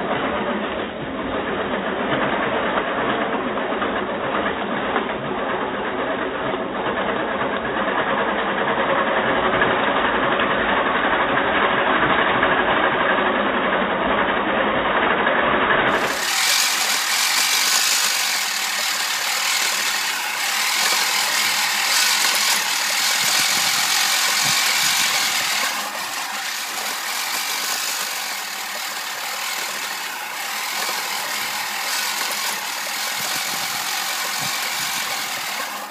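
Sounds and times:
reel mower blade whirring: 0:15.9 - 0:35.9.

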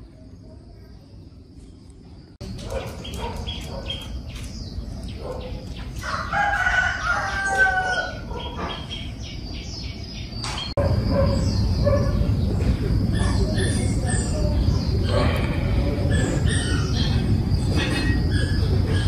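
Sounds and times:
rooster crowing: 0:06.0 - 0:08.3.

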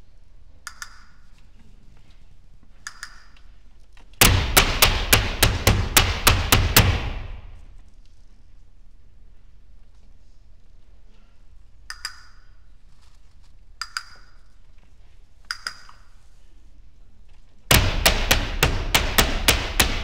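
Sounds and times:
flamenco footwork on stage: 0:04.2 - 0:07.6, 0:17.7 - 0:20.0.

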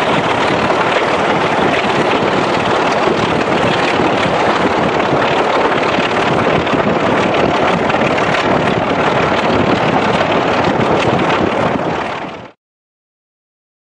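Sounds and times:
train wheels on rails: 0:00.0 - 0:12.3
diesel locomotive running: 0:00.0 - 0:12.6
wind rushing on microphone: 0:00.0 - 0:12.6.

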